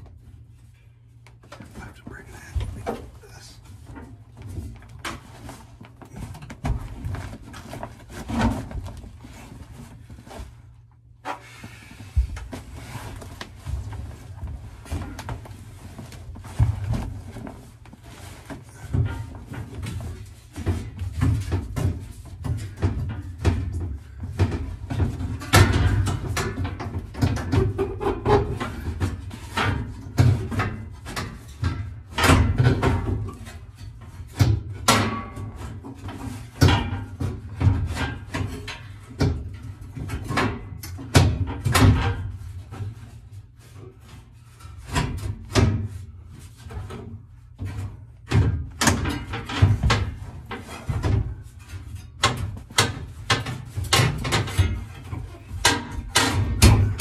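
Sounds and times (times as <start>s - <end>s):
knocks and clunks on metal: 18.8s - 43.2s, 46.6s - 57.0s.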